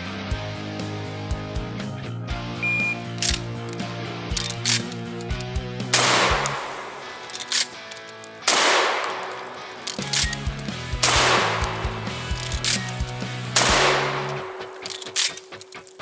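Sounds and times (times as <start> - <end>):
metallic clicks of shotgun loading: 3.0 - 16.0
shotgun shots echoing: 5.9 - 10.3, 11.0 - 12.9, 13.5 - 15.5.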